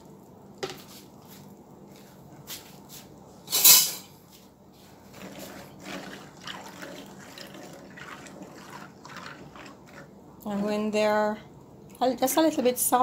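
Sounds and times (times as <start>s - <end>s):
spoon stirring beans in water: 4.8s - 11.4s, 12.0s - 13.0s.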